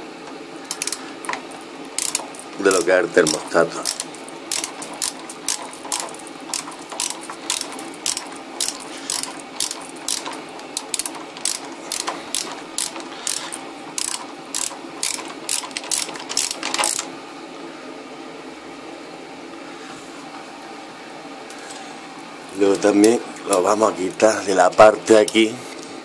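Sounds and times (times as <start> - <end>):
socket wrench ratchet clicking: 0.7 - 1.0, 2.0 - 2.4, 3.3 - 17.1.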